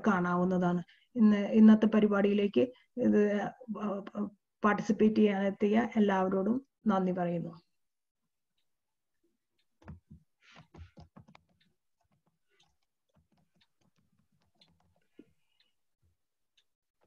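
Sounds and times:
faint clicks and soft knocks: 9.4s - 17.0s.

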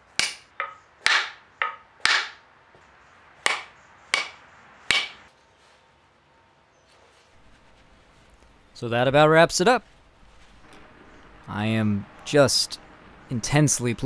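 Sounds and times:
hammer striking wooden wedge: 0.1s - 2.4s, 3.4s - 5.3s.

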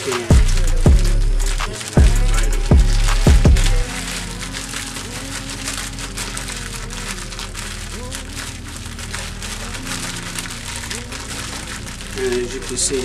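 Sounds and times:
cookies crunching: 0.0s - 13.0s
plastic bag crinkling: 0.0s - 13.0s.

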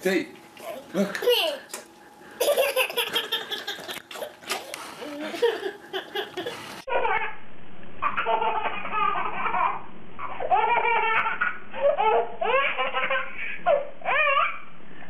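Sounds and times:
babies laughing: 2.4s - 7.3s, 8.0s - 14.6s.

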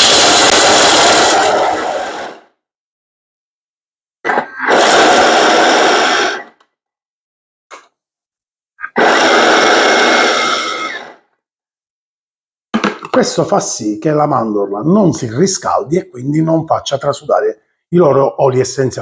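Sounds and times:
blender grinding almonds: 8.9s - 11.2s.

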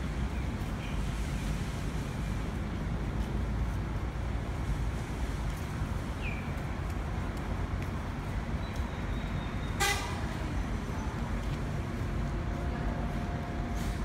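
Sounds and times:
bus engine rumble: 0.0s - 14.0s
bus horn toot: 9.8s - 10.3s.

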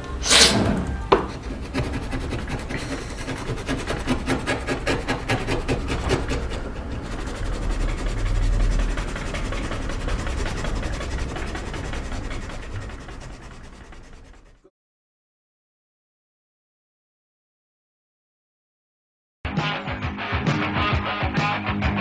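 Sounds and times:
scrubbing wooden slats: 0.2s - 14.6s.

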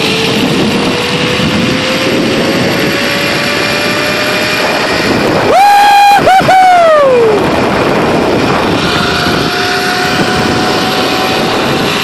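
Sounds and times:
wind on microphone: 0.0s - 12.0s
zipline trolley running on cable: 0.0s - 12.0s
person whooping: 5.4s - 7.4s.

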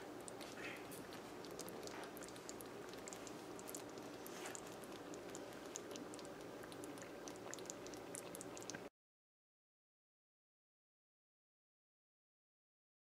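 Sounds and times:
curry sizzling and crackling: 0.0s - 8.9s
low steady hum: 0.0s - 8.9s.

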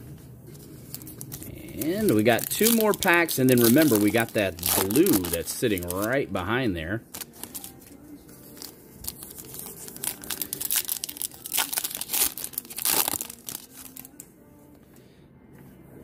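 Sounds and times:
foil wrapper crinkling and tearing: 0.9s - 6.3s, 7.1s - 14.2s.

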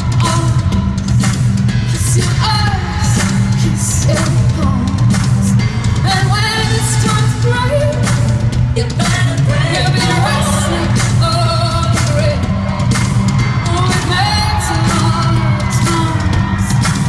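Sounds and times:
live amplified band: 0.0s - 17.0s
woman singing: 0.0s - 17.0s.

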